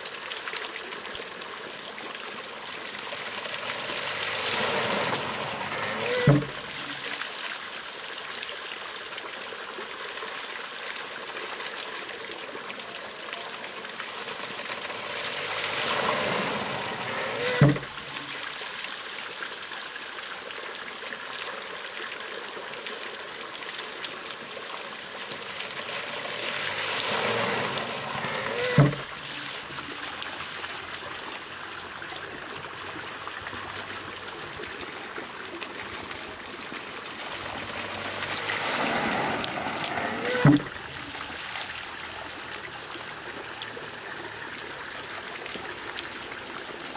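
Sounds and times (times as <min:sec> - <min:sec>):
water pouring: 0:00.0 - 0:19.9, 0:20.5 - 0:46.9
water trickling: 0:00.0 - 0:46.9
wooden thud: 0:06.1 - 0:06.6, 0:17.3 - 0:17.9, 0:28.4 - 0:29.1.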